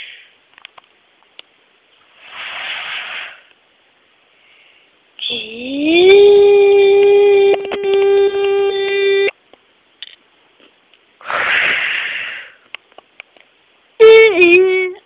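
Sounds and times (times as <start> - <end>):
breathy hiss: 0.0 - 0.4, 2.0 - 3.6, 4.2 - 5.6, 11.2 - 12.7.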